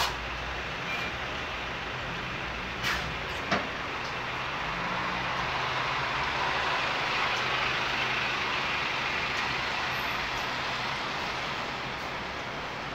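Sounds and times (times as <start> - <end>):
bus pulling away: 0.0 - 12.9
road traffic hiss: 0.0 - 12.9.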